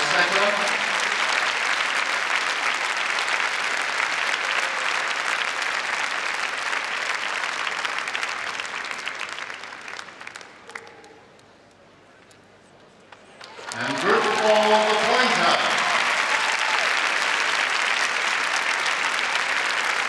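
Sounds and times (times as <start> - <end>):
large audience applauding: 0.0 - 11.2, 13.4 - 20.0.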